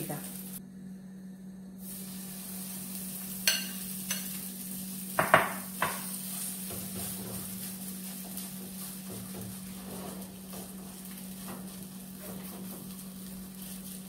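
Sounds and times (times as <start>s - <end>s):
batter sizzling in a frying pan: 0.0s - 0.6s, 1.8s - 14.0s
steady low hum: 0.0s - 14.0s
spoon scraping a pan: 3.3s - 4.5s, 5.2s - 14.0s.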